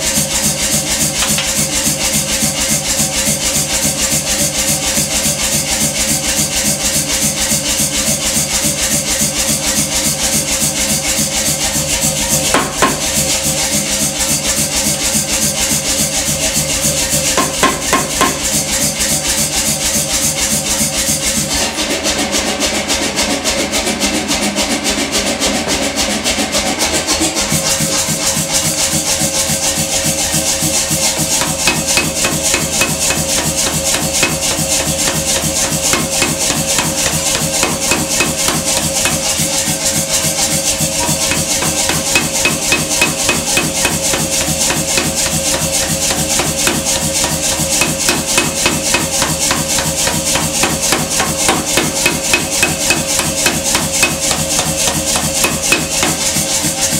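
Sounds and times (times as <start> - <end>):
power hammer striking steel: 1.0 - 2.2, 12.3 - 14.3, 16.5 - 19.5, 30.8 - 56.9
machine humming: 30.8 - 56.9.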